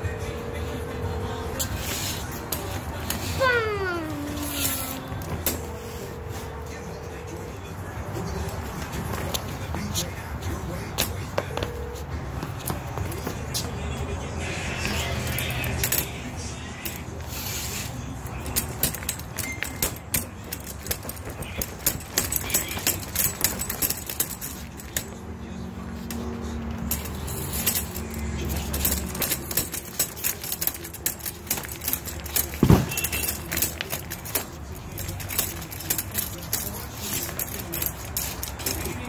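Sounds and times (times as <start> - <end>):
metal chair frame clinking: 1.6 - 7.4, 14.6 - 39.0
heavy thud: 32.6 - 33.2.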